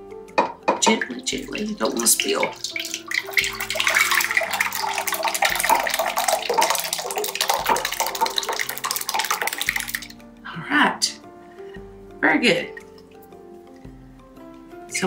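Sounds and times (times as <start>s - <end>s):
liquid mixture pouring splashily: 1.0s - 10.2s.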